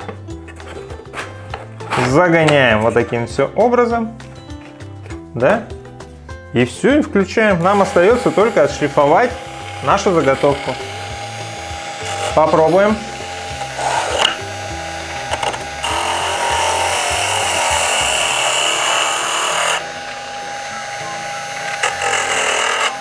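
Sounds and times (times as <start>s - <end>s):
electric motor whining: 7.5s - 23.0s
wood sanding hiss: 7.6s - 23.0s.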